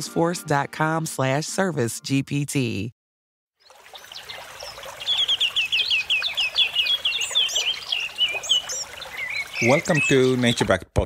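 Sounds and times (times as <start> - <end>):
birds chirping: 3.6 - 10.8.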